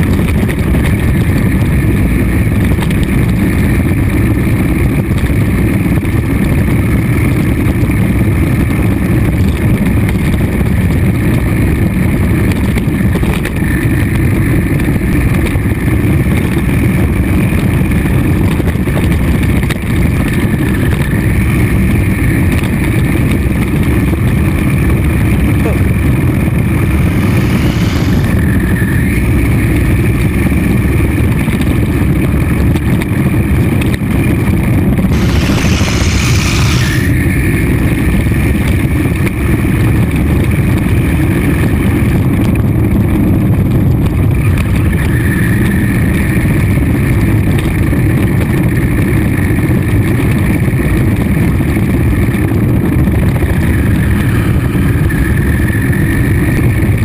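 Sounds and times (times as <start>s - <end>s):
vehicle engine rumble: 0.0s - 57.0s
brief rushing hiss: 26.6s - 29.0s, 35.1s - 37.5s.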